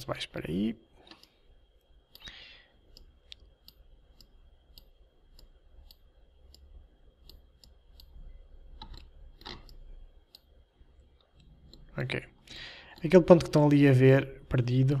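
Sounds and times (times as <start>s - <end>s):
computer mouse clicks: 1.0s - 1.4s, 2.1s - 10.6s, 11.2s - 12.0s.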